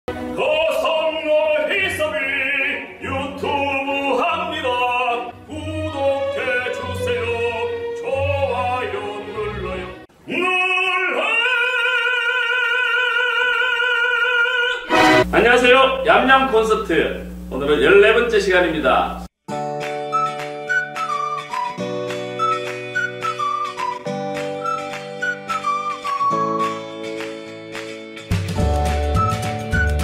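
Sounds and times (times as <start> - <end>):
man singing opera: 0.1 - 15.2.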